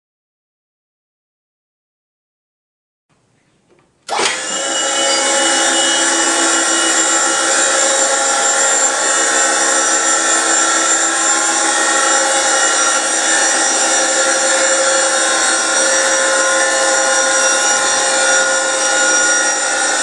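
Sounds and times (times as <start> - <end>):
motor-driven machine running: 4.1 - 20.0.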